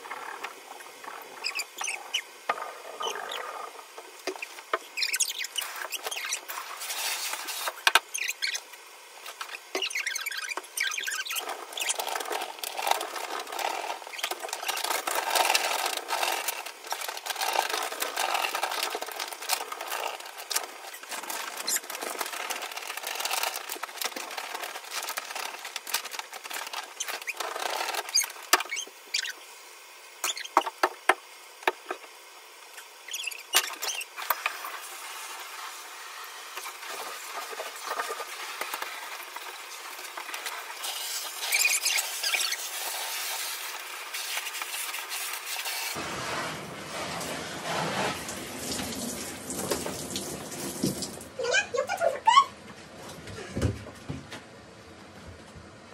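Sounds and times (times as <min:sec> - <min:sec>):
scouring pad scrubbing bathtub: 0:33.1 - 0:51.4.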